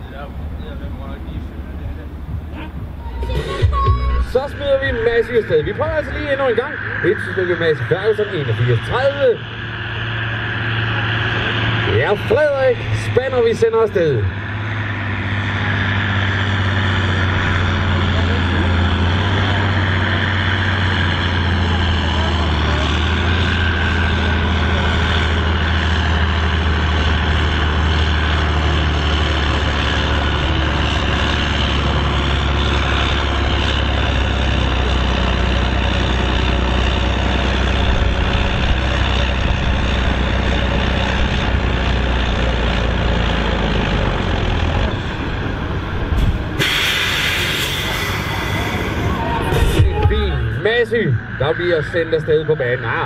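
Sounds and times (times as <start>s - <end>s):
tractor diesel engine under load: 0.0s - 53.0s
loud hiss: 46.6s - 48.7s.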